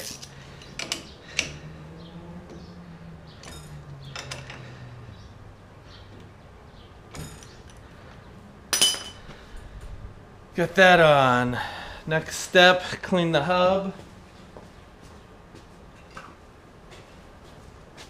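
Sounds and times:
tools clinking on steel: 3.4s - 4.8s, 7.1s - 7.9s, 8.7s - 9.4s.

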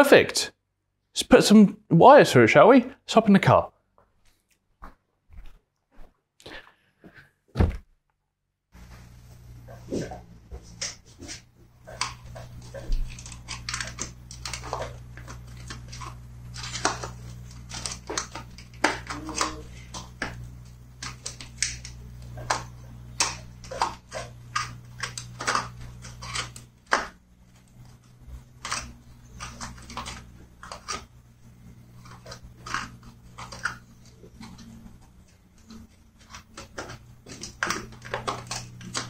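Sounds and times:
steady low hum: 8.7s - 39.0s
hands rattling wiring connectors: 10.8s - 31.1s.

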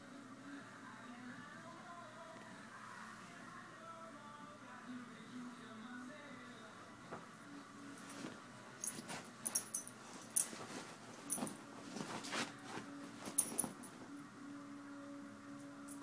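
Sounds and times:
faint low hum: 0.0s - 16.0s
light taps and rustles: 8.0s - 14.0s.

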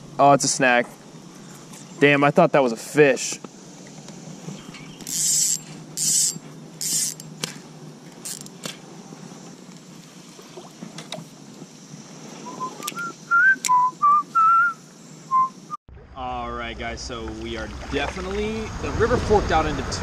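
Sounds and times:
steady low hum: 0.0s - 20.0s
person whistling: 12.5s - 15.7s.

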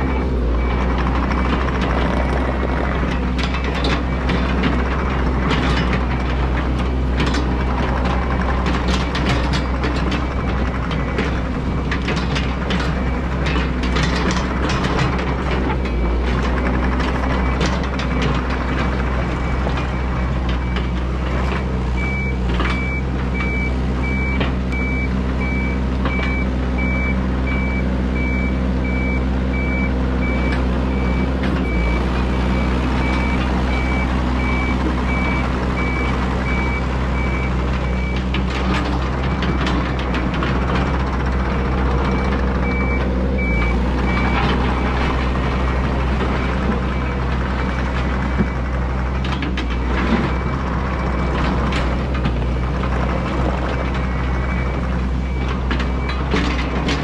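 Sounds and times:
excavator diesel engine running: 0.0s - 57.0s
travel alarm beeping: 22.0s - 38.3s, 42.0s - 45.1s.

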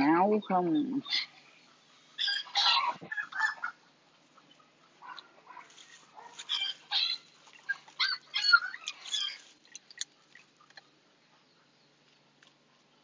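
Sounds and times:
puppy yelping and whining: 2.2s - 3.7s, 6.2s - 9.5s.

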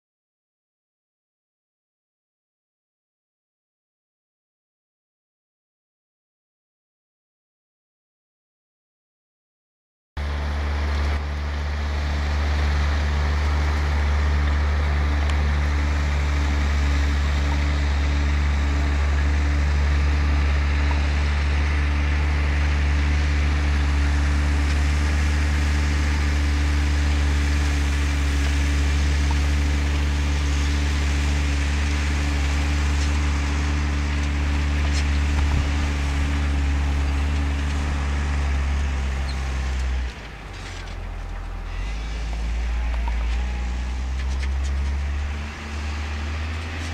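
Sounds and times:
tractor diesel engine droning: 10.2s - 46.9s.

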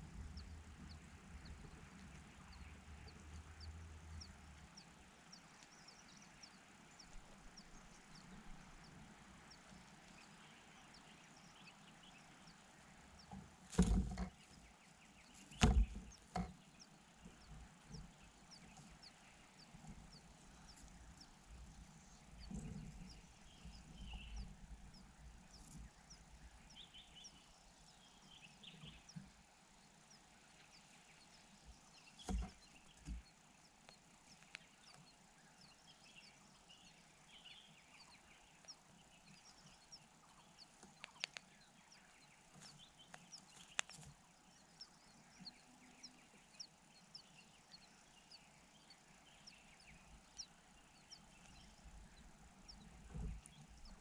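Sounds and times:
birds chirping and warbling: 0.0s - 54.0s
soft low thumps: 15.3s - 27.0s.

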